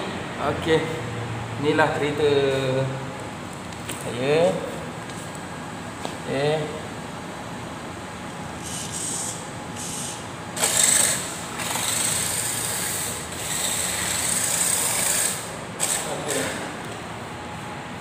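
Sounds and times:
toy car motor whine: 8.6 - 16.5.

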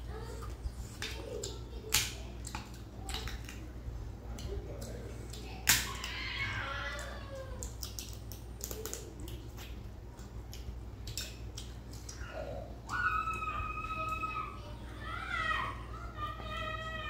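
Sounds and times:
eating clicks and smacks: 0.5 - 3.7, 4.3 - 13.4
loud crack of crab shell: 5.6 - 6.2.

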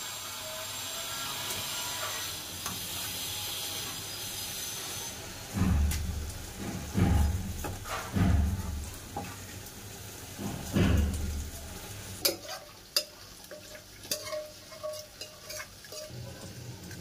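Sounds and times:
food hissing and sizzling in pot: 0.0 - 17.0
steel ladle stirring: 12.2 - 17.0.

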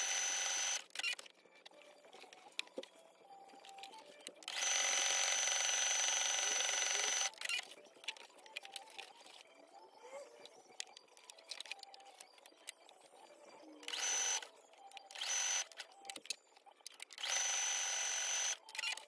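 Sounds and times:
sewing machine whining: 0.0 - 1.2, 4.5 - 7.4, 17.2 - 19.0.

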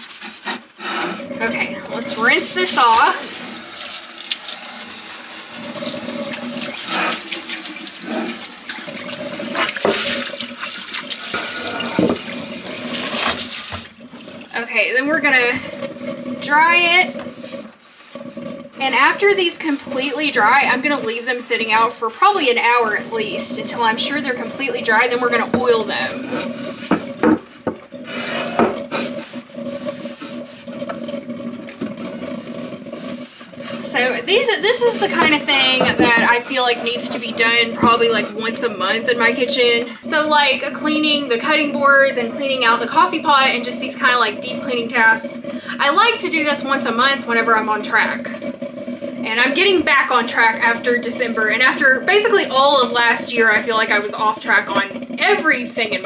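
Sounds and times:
faucet sprayer water splashing: 1.9 - 27.3
cloth wiping wet cutting board: 32.4 - 34.0.

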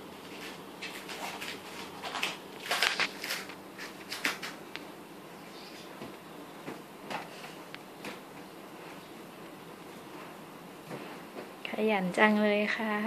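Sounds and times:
rustles and light knocks: 9.8 - 11.6.

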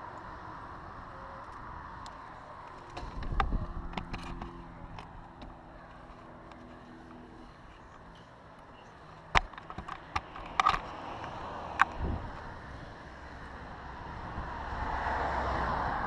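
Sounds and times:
wind noise: 3.0 - 4.5, 11.8 - 12.5.

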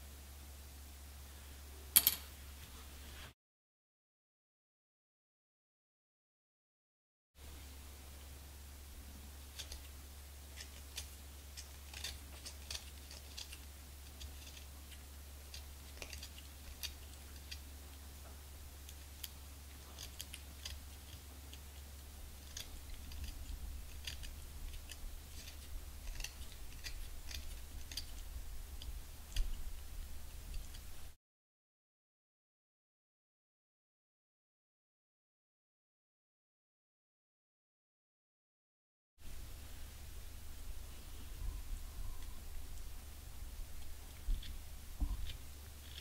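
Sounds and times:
knife scraping reed: 10.5 - 17.6, 22.4 - 28.3
low hum: 39.2 - 46.0.

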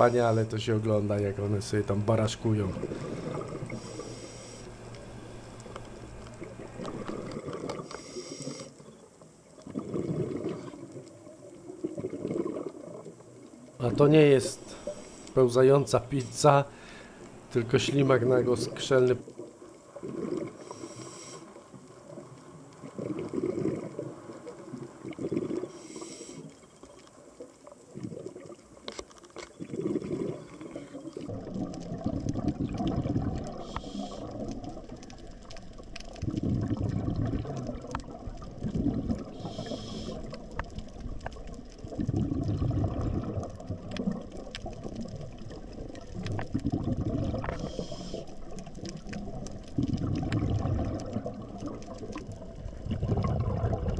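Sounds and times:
bubbling exhaust: 0.0 - 8.7, 22.8 - 24.2, 29.6 - 35.5, 36.1 - 40.9, 41.8 - 53.9
regulator inhalation hiss: 2.9 - 5.6, 7.8 - 8.9, 14.6 - 17.5, 20.6 - 21.7, 25.7 - 26.6, 33.5 - 34.4, 39.3 - 40.4, 47.5 - 48.4
faint scattered clicks: 3.7 - 9.7, 43.5 - 46.7.

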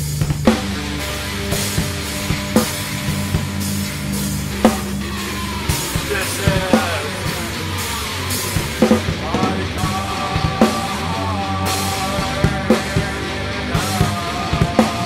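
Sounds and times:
doom metal music: 0.0 - 15.0
drum kit heavy strikes: 0.0 - 15.0.

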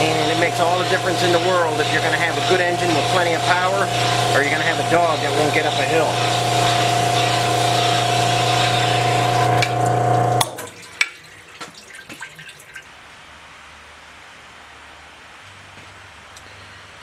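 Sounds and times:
honing machine humming: 0.0 - 10.5
dripping: 0.0 - 12.9.

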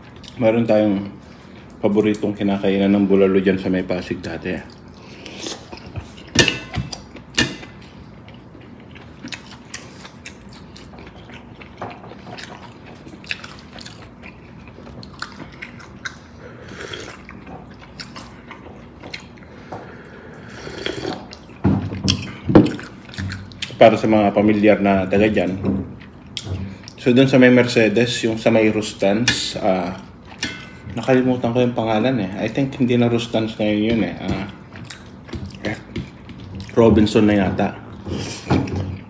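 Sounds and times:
chewing: 4.3 - 23.8, 25.4 - 27.0, 34.3 - 36.8.

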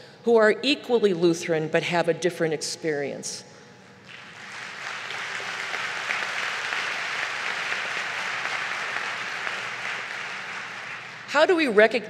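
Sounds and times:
large audience applauding: 4.1 - 11.4.

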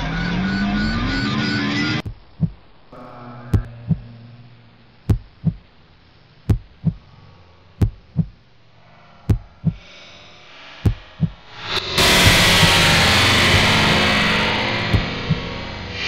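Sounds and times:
heartbeat thumps: 2.0 - 2.7, 3.5 - 4.1, 5.1 - 5.7, 6.5 - 7.1, 7.8 - 8.5, 9.2 - 9.9, 10.8 - 14.0, 14.9 - 15.5
faint hiss: 4.0 - 11.3.

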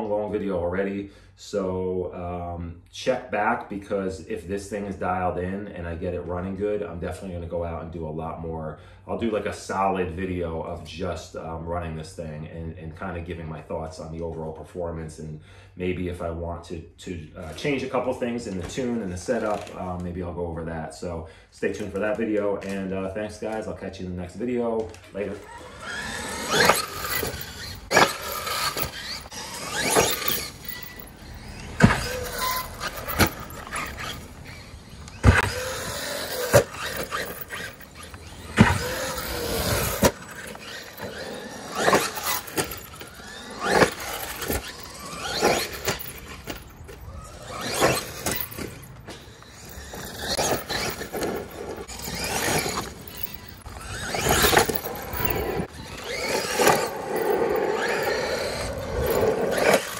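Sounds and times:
tyre noise: 24.6 - 59.9
electric motor whining: 25.1 - 59.9.

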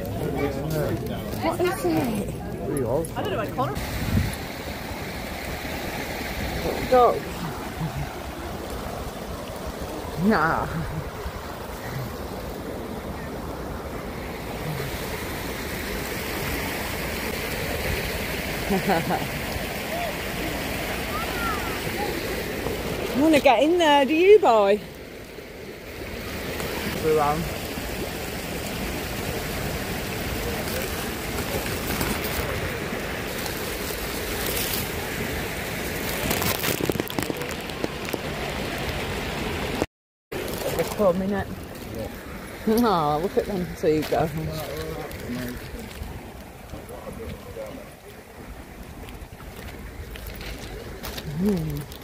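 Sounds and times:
river water pouring over weir: 0.0 - 52.0
wind buffeting microphone: 3.3 - 4.8
wind on microphone: 3.6 - 15.4.

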